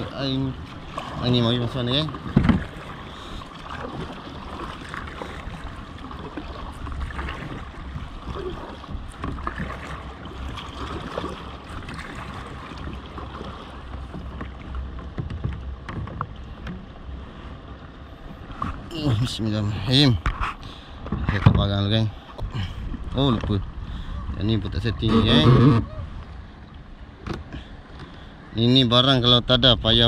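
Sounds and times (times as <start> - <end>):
paddle splashing water: 0.0 - 29.9
water lapping along a hull: 0.0 - 30.0
wind rumbling on microphone: 20.1 - 26.5.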